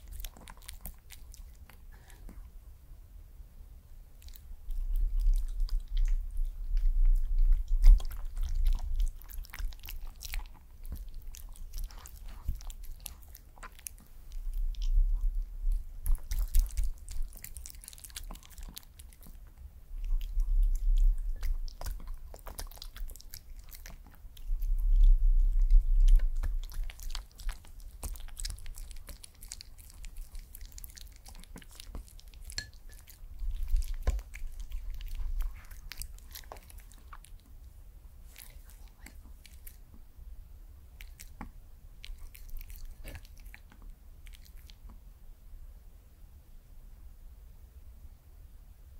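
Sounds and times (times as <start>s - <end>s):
dog chewing food: 0.0s - 2.5s, 4.1s - 40.1s, 40.8s - 45.0s.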